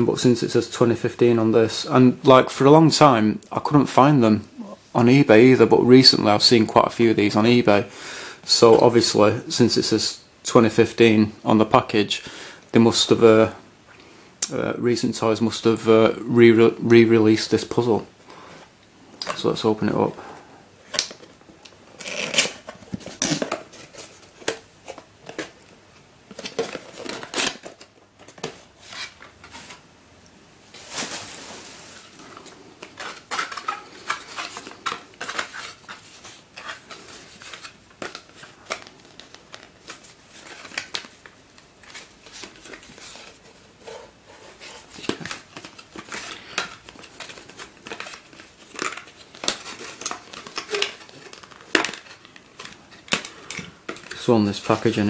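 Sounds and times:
cardboard rustling and scraping: 41.8 - 53.3.

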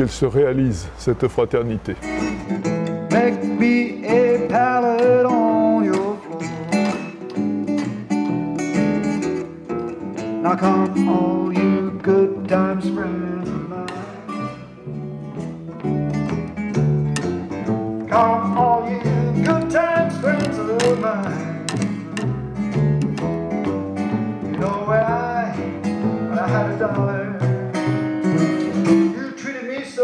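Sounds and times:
acoustic guitar picked and strummed: 2.0 - 30.0
upright double bass: 10.2 - 29.2.

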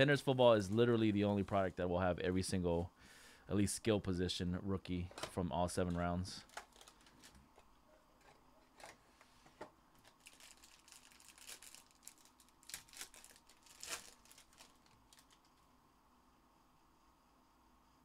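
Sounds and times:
foil wrapper crinkling and tearing: 6.4 - 7.4, 10.0 - 15.6.

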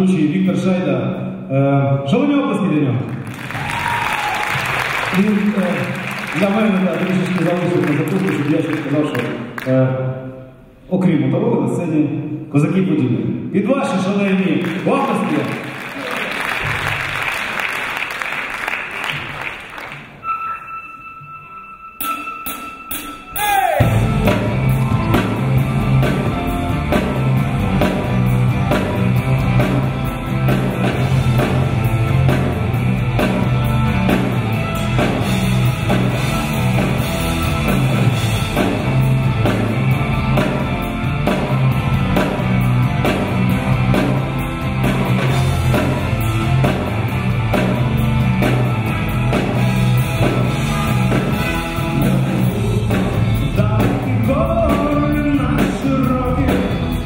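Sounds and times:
drum kit beat: 22.0 - 57.0
bass guitar: 23.8 - 57.0
electric guitars: 23.8 - 57.0.

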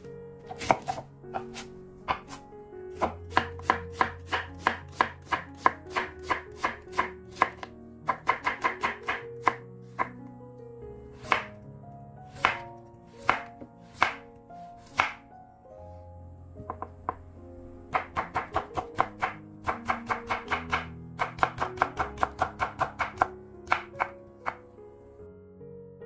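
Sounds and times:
knife cutting carrot: 0.4 - 10.2, 11.2 - 11.6, 12.3 - 15.2
knife chopping onion on wooden board: 0.5 - 10.2, 11.2 - 11.6, 12.3 - 14.2, 14.8 - 15.2, 17.9 - 24.6.

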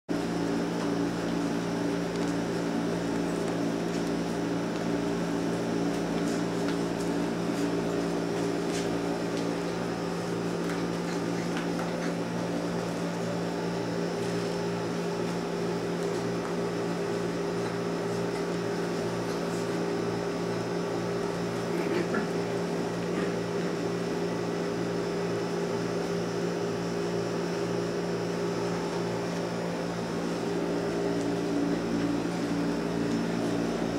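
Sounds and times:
low mechanical hum: 0.1 - 33.9.

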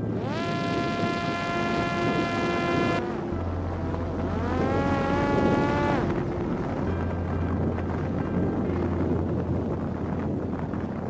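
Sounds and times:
drone motor and propeller whining: 0.0 - 8.1
wind noise on microphone: 0.0 - 11.0.

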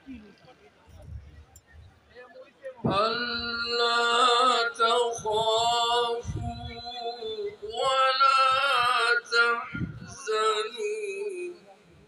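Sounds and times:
person chanting in long notes: 2.9 - 11.6.

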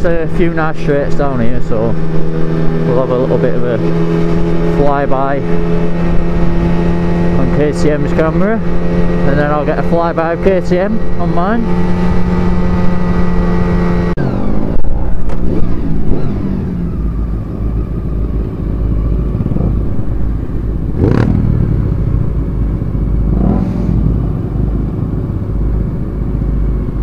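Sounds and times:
motorcycle engine cruising: 0.0 - 27.0
passing vehicle noise: 11.0 - 27.0.

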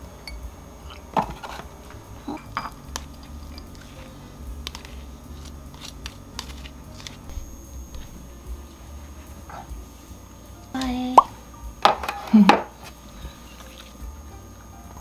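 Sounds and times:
ceramic dishes clinking and knocking: 2.2 - 3.7.

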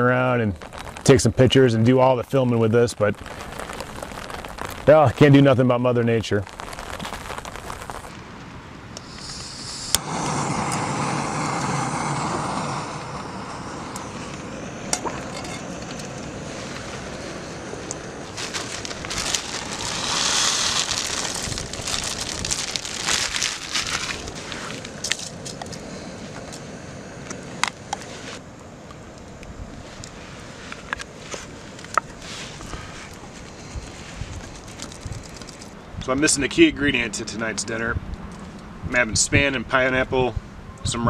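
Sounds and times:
food hissing into a pot: 9.0 - 25.1
camping stove burner roaring: 9.0 - 34.0.

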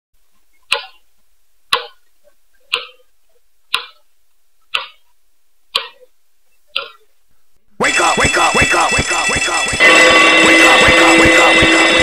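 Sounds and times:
clock ticking: 0.6 - 1.1, 1.7 - 3.1, 3.7 - 4.1, 4.7 - 5.1, 5.7 - 6.1, 6.7 - 7.1, 7.8 - 12.0.

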